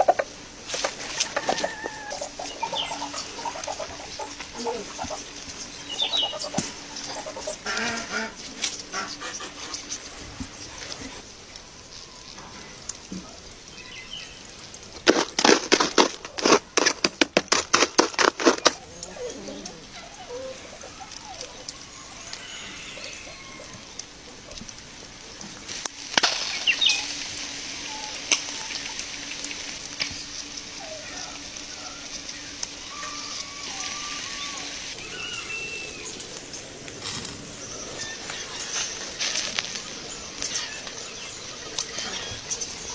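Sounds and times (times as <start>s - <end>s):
charcoal fire sizzling and crackling: 0.0s - 42.9s
metal rod raking charcoal embers: 14.9s - 19.1s, 38.2s - 41.1s.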